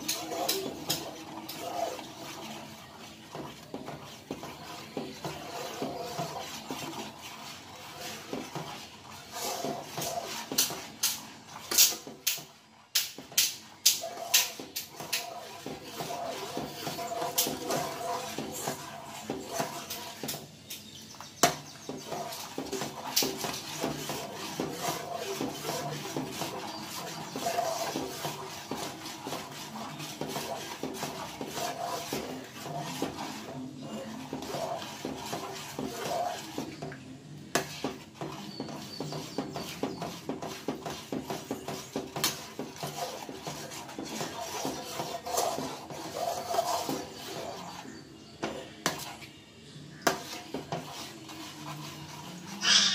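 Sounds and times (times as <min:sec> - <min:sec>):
ladle clinking and scraping pan: 0:00.0 - 0:12.4, 0:13.2 - 0:21.0, 0:21.9 - 0:36.8, 0:50.0 - 0:52.9.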